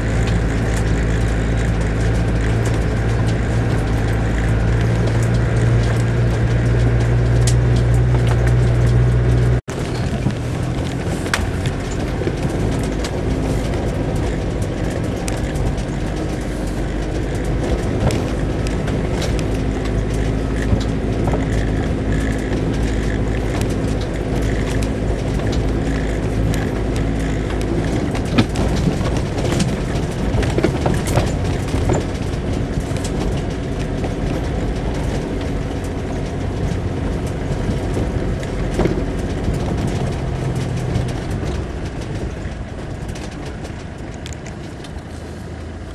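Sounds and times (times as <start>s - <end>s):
knocks and rattles from bumpy track: 0.0s - 45.9s
off-road vehicle engine drone: 0.0s - 45.9s.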